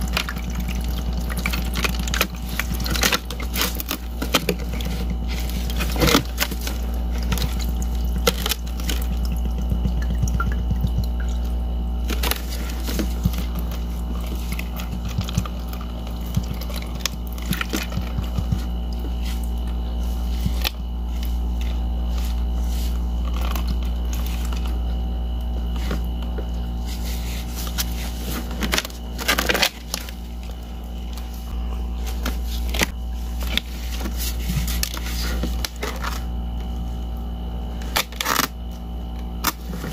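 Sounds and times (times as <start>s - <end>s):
ice crackling and tapping: 0.0s - 19.8s
water sloshing: 0.0s - 24.8s
steady low hum: 0.0s - 39.9s.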